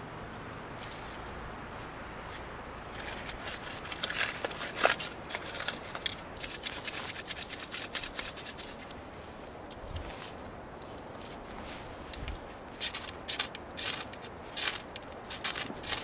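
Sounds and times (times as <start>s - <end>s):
bark crackling and tearing: 2.8s - 9.0s, 12.4s - 16.0s.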